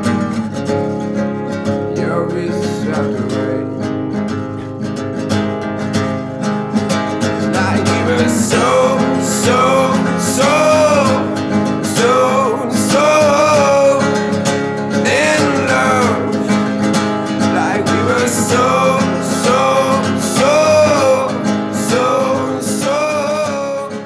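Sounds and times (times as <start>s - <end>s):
strummed acoustic guitar: 0.0s - 24.0s
person singing: 1.9s - 3.9s, 7.4s - 24.0s.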